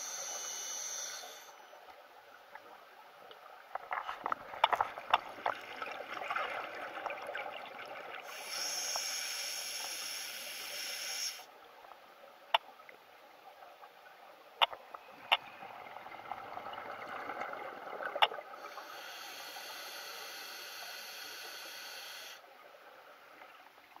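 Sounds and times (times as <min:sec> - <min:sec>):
regulator air hiss: 0:00.0 - 0:01.6, 0:08.3 - 0:11.5, 0:18.6 - 0:22.4
exhaled bubbles gurgling: 0:03.6 - 0:09.2, 0:14.8 - 0:22.3.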